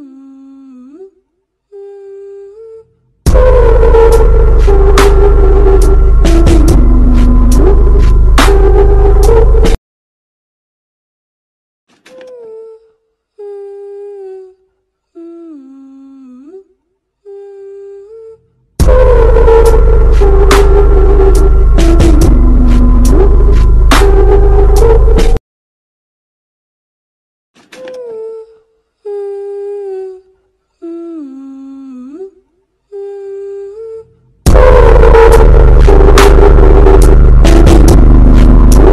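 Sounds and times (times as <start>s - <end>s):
person humming a slow tune: 0.0s - 9.7s, 12.1s - 25.2s, 27.8s - 38.9s
loud noisy sound: 34.5s - 38.9s.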